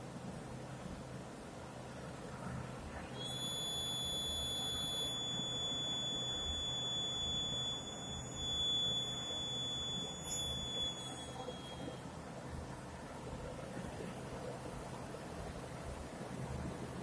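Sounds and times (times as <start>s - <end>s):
high-pitched buzzer tone: 3.2s - 12.1s.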